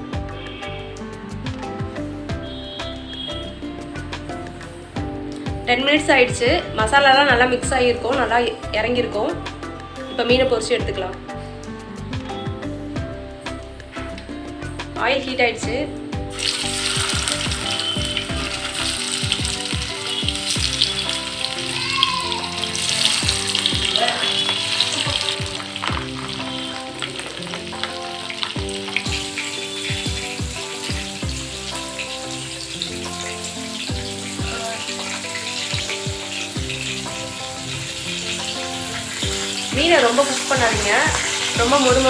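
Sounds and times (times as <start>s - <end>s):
fish sizzling in hot oil: 0.0s - 5.6s, 16.3s - 42.0s.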